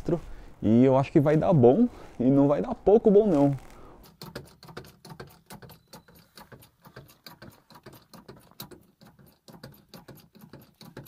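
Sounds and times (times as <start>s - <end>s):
rapid light taps: 4.0s - 11.0s.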